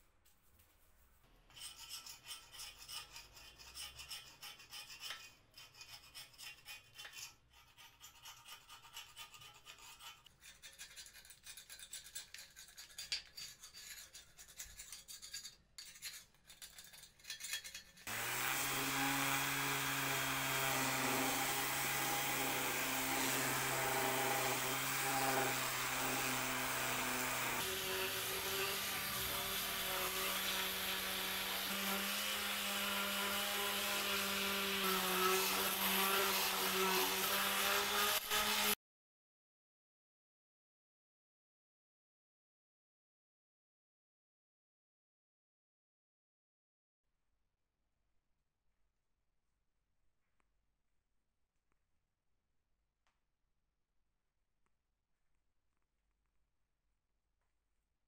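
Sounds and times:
hand scrubbing metal: 0:01.5 - 0:38.8
electric orbital sander: 0:18.1 - 0:38.8.

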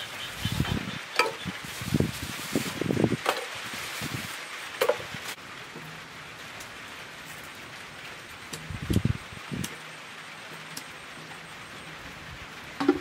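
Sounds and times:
dull knocks on metal bucket: 0:12.8 - 0:13.0.

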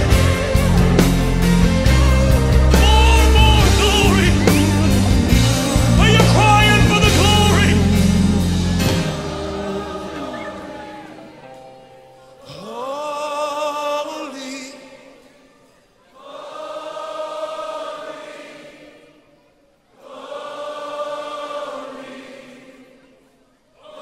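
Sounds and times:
voices singing long notes: 0:00.0 - 0:15.2, 0:20.0 - 0:23.1.

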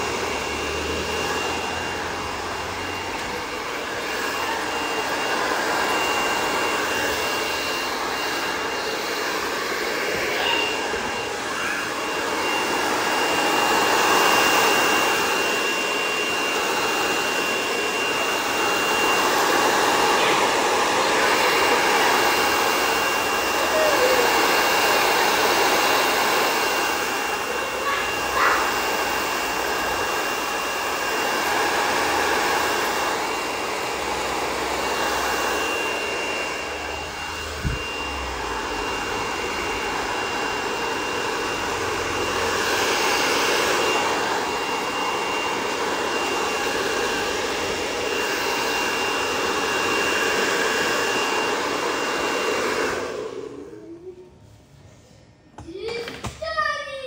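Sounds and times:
hair dryer blowing: 0:00.0 - 0:57.0.

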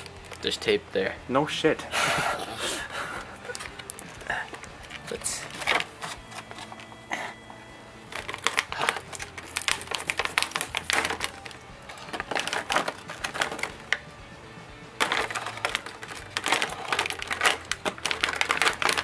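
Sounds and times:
knife cutting plastic packaging: 0:03.5 - 0:06.9, 0:08.1 - 0:14.0, 0:15.0 - 0:19.0.

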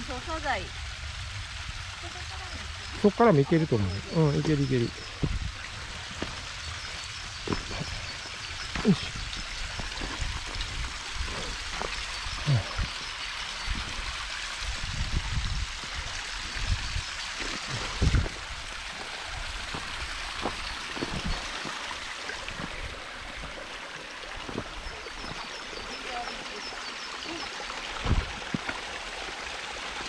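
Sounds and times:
mountain stream rushing: 0:00.0 - 0:30.0
low thuds: 0:04.4 - 0:05.5, 0:28.0 - 0:28.6.

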